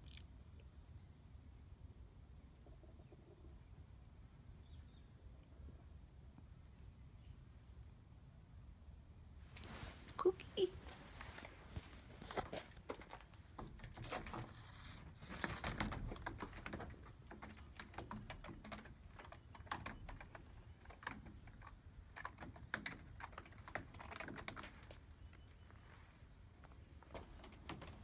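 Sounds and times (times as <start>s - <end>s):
cat claws scratching rope post: 12.4s - 25.0s.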